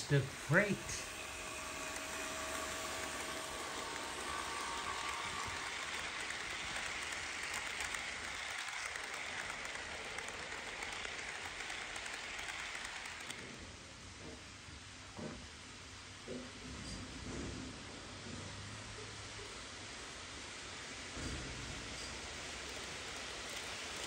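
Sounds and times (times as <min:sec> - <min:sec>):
model train wheels rattling on track: 0:00.0 - 0:13.7, 0:20.0 - 0:24.0.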